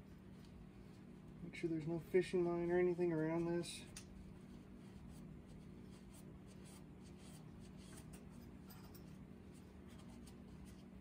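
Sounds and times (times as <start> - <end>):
cloth wiping metal shaft: 0.0 - 8.4
steady low hum: 0.0 - 11.0.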